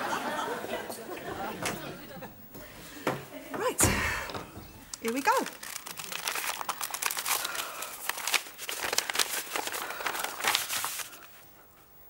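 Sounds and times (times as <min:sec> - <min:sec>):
paper rustling and crinkling: 0:05.0 - 0:11.5.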